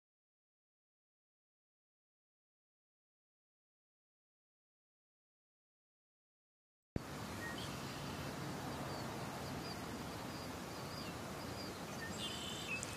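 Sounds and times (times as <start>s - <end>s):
steady outdoor hiss: 7.0s - 12.9s
faint high bird chirps: 7.4s - 12.9s.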